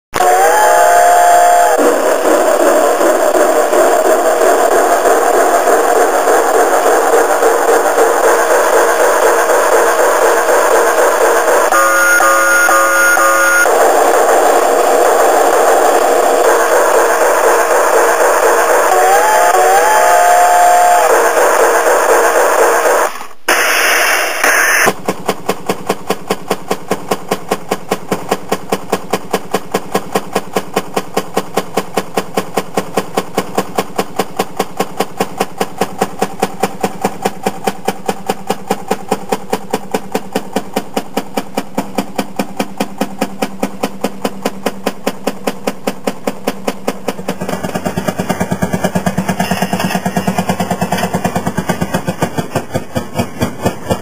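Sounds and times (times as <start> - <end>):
rail car rumbling: 0.2 - 22.9, 24.9 - 54.0
two-stroke engine putting: 16.1 - 23.2, 24.8 - 54.0.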